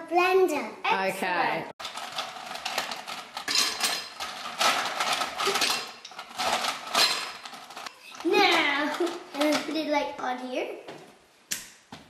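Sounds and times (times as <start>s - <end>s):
ice cubes clinking: 1.8s - 9.6s.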